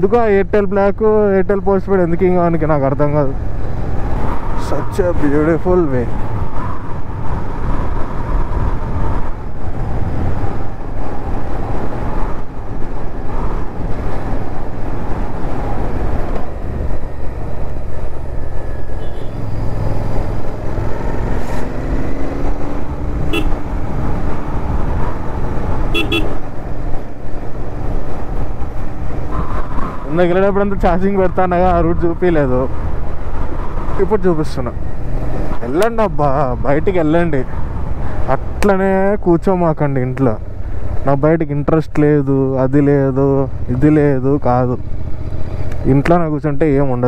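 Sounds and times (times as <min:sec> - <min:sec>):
wind noise on microphone: 0:03.4 - 0:34.0
horn toots: 0:23.3 - 0:23.6, 0:25.9 - 0:26.4.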